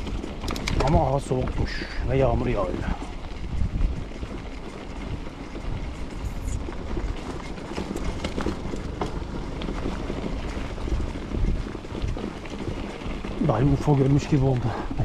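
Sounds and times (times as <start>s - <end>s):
wind on microphone: 0.0s - 7.4s, 9.6s - 13.8s
bike tyres rumbling on gravel: 0.0s - 15.0s
stones and bike rattling: 0.0s - 15.0s.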